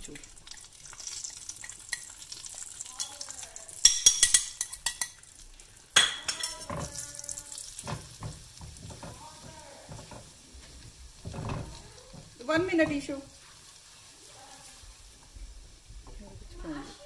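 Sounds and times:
spices sizzling in hot oil: 0.0 - 17.0
clattering knocks: 7.8 - 13.1.

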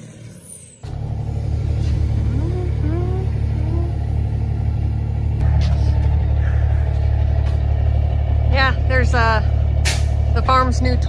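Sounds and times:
diesel engine idling: 0.8 - 11.0.

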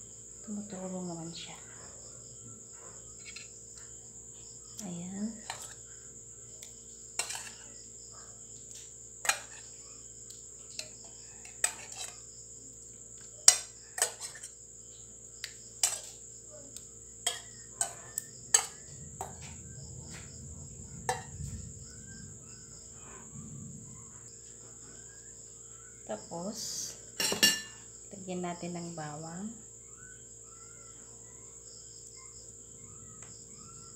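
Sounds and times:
crickets chirring: 0.0 - 33.9
utensils and steel bowl clinking: 10.8 - 12.2, 13.4 - 14.5, 15.8 - 16.2, 27.2 - 27.8.

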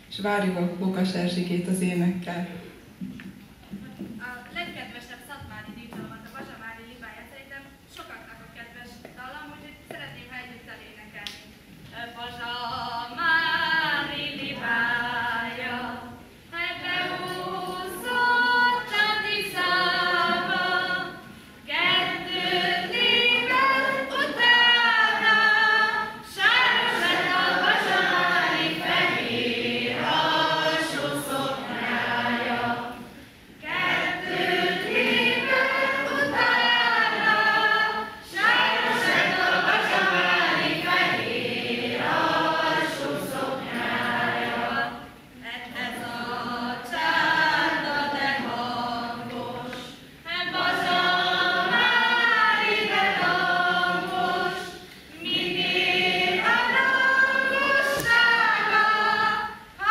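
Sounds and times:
children and adults singing: 12.2 - 59.9.

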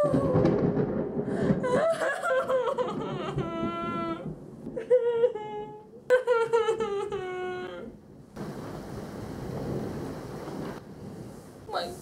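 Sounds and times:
girl whining and laughing: 0.0 - 0.6, 1.4 - 8.0.

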